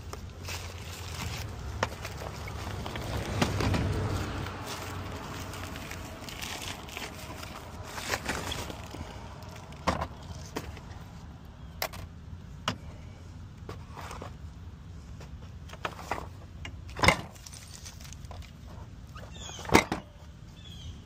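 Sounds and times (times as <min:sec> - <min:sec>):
plastic bag rustling: 0:00.0 - 0:10.6.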